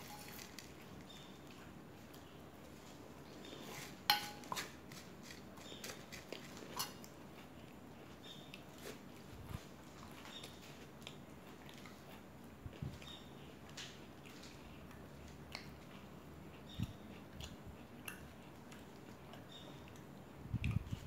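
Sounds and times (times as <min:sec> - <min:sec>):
spoon clinking on metal bowl: 0:04.1 - 0:04.6.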